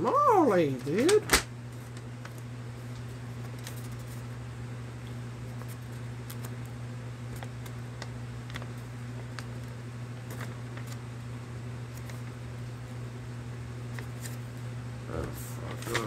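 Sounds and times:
steady low hum: 0.0 - 16.0
paper crinkling: 0.4 - 4.3, 5.4 - 11.1, 11.8 - 12.6, 13.8 - 14.6, 15.3 - 16.0.

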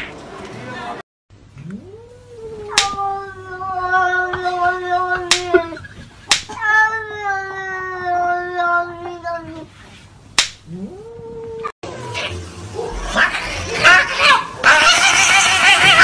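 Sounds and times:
cat yowling: 1.7 - 5.8, 10.7 - 16.0.

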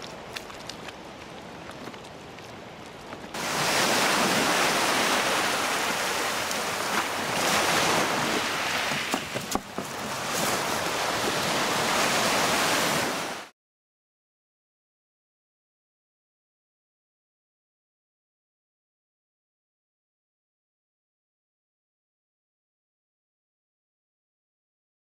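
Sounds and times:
quiet open water: 0.0 - 13.5
waves breaking on pebble beach: 3.2 - 13.5.

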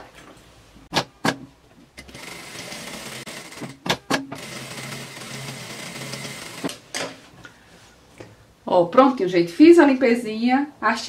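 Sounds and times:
sewing machine running: 2.1 - 3.8, 4.4 - 6.8.

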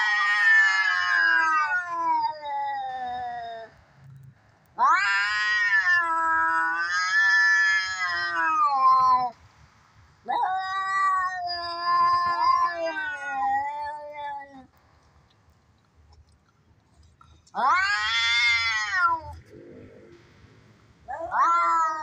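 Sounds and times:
cat yowling: 0.0 - 3.7, 4.8 - 9.3, 10.2 - 14.7, 17.6 - 19.4, 21.1 - 22.0.

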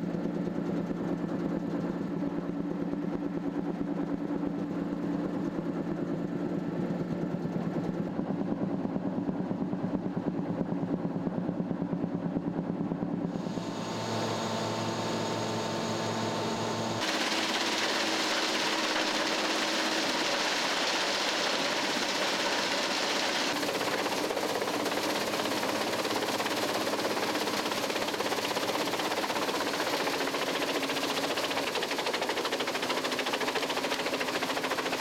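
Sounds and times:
wood chipper running: 13.4 - 35.0.

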